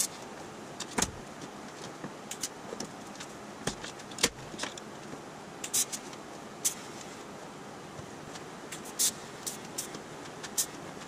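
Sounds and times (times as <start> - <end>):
shop room hiss: 0.0 - 0.8, 5.3 - 11.0.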